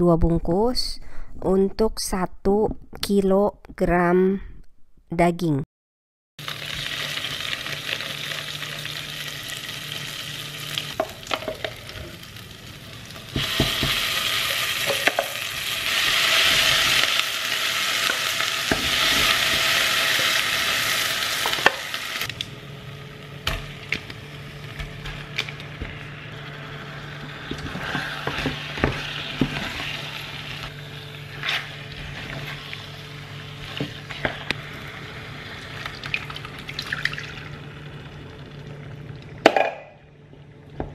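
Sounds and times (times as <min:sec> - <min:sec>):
spice paste sizzling in oil: 0:06.4 - 0:22.8, 0:25.8 - 0:36.3.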